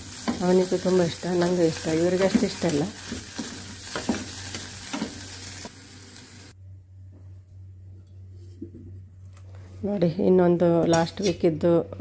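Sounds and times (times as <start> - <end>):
mushrooms sizzling in hot oil: 0.0 - 6.6.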